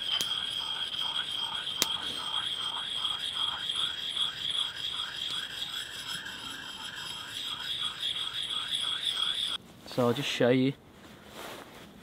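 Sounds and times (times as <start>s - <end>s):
sharpening stone scraping steel: 0.0s - 9.6s
steady high whine: 0.0s - 9.6s.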